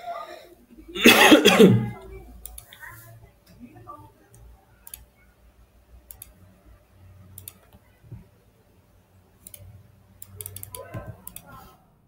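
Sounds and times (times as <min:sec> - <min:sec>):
computer mouse clicking: 0:02.4 - 0:02.8, 0:04.3 - 0:05.2, 0:06.1 - 0:06.4, 0:07.3 - 0:08.3, 0:09.4 - 0:11.8.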